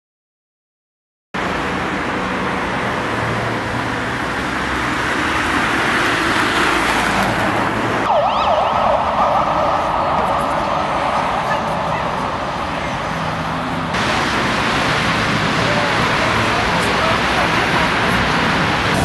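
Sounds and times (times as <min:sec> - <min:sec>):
city street traffic: 0:01.4 - 0:19.0
siren yelping: 0:08.1 - 0:12.6.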